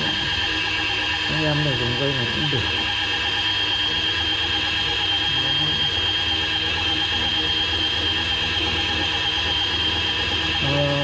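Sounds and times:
fishing reel motor whining: 0:00.0 - 0:11.0.

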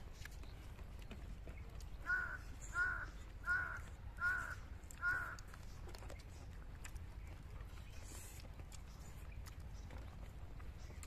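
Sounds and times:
bird calling: 0:01.9 - 0:05.9.

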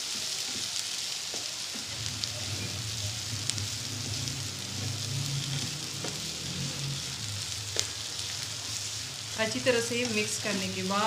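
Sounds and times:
food sizzling in hot oil: 0:00.0 - 0:11.0
low steady hum: 0:01.8 - 0:11.0.

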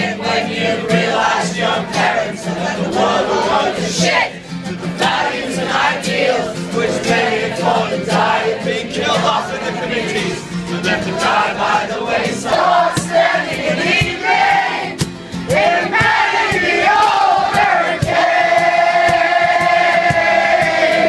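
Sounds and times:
crowd singing along: 0:00.0 - 0:21.0
strummed acoustic guitar: 0:00.0 - 0:21.0
man singing: 0:05.8 - 0:12.8.

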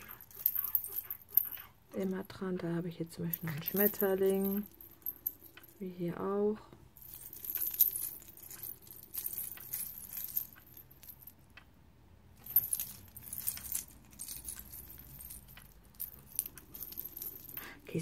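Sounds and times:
metal key rings jangling: 0:00.0 - 0:02.0, 0:03.4 - 0:05.8, 0:07.0 - 0:11.3, 0:12.4 - 0:18.0.

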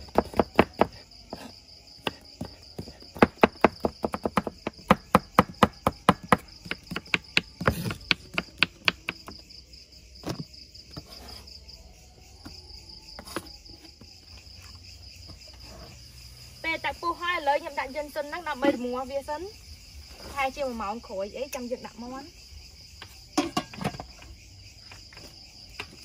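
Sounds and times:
knife chopping on wooden board: 0:00.0 - 0:02.2, 0:02.8 - 0:09.4
high insect chorus: 0:00.0 - 0:26.0.

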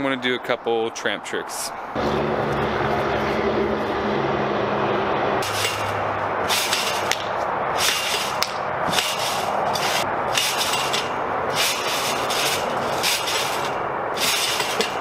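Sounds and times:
steady low hum: 0:02.0 - 0:15.0
trampoline springs hissing: 0:05.4 - 0:15.0.

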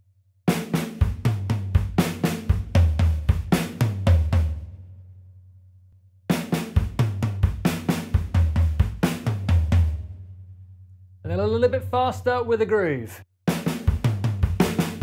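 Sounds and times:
drum kit fill: 0:00.5 - 0:04.8, 0:06.3 - 0:10.2, 0:13.5 - 0:15.0.

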